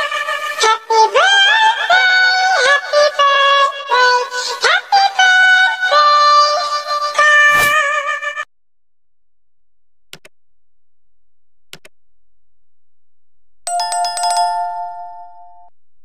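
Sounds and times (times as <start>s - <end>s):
mouse clicks: 10.1s - 10.3s, 11.7s - 11.9s
notification bell chime: 13.7s - 15.7s.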